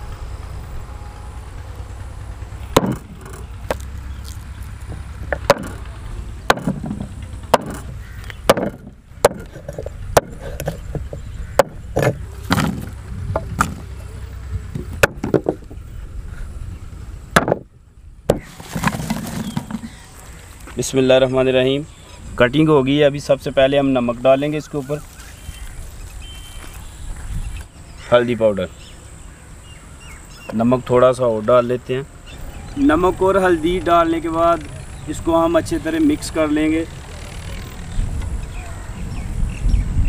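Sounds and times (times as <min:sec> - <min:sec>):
steady low rumble: 0:00.0 - 0:18.4
cleaver chopping on wooden board: 0:02.8 - 0:03.1, 0:05.3 - 0:05.8, 0:06.5 - 0:07.9, 0:08.5 - 0:13.8, 0:18.3 - 0:18.9.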